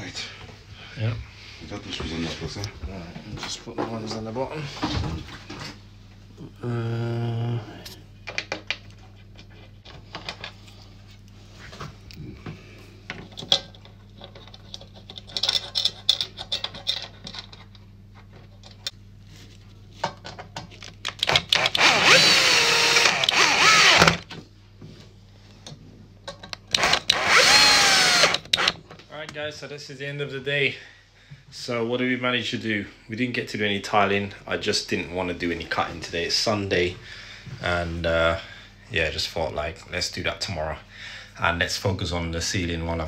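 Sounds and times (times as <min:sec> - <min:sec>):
drill-driver driving screws: 0:21.2 - 0:24.2, 0:26.7 - 0:28.8.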